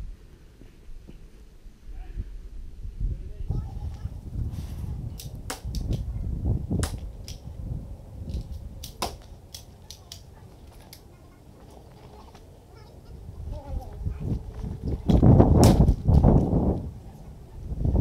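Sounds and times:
low rumble: 0:01.8 - 0:09.5.

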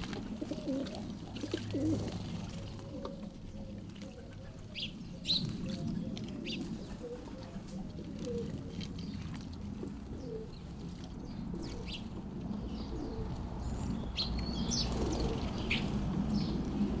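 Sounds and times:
faint low cooing: 0:00.0 - 0:09.1
birds chirping: 0:00.0 - 0:17.0.

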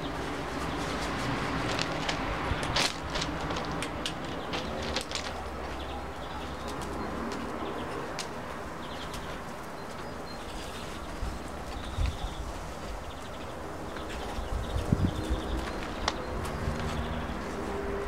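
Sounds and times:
sharp clicks and crunches: 0:00.6 - 0:05.9.

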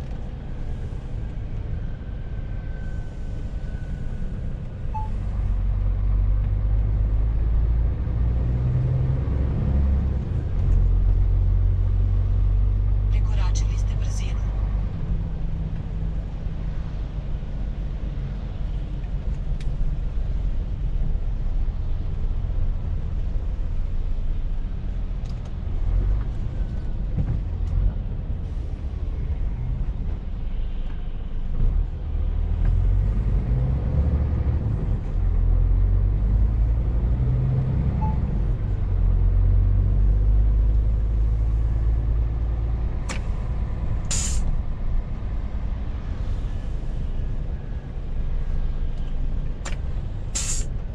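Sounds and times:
truck diesel engine rumble: 0:00.0 - 0:50.9
air hiss: 0:44.1 - 0:44.5, 0:50.3 - 0:50.7.

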